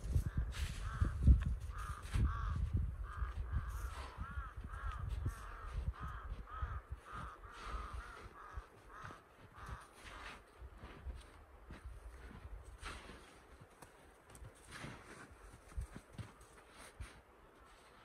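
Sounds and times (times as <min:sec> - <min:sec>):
crows cawing: 0:00.2 - 0:11.3.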